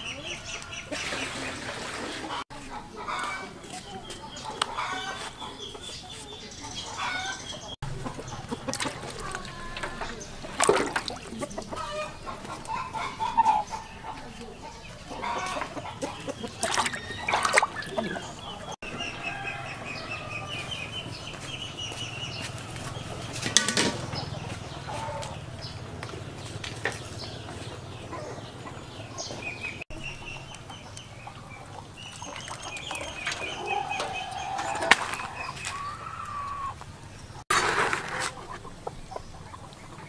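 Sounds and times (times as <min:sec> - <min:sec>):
chickens clucking: 0:00.0 - 0:40.0.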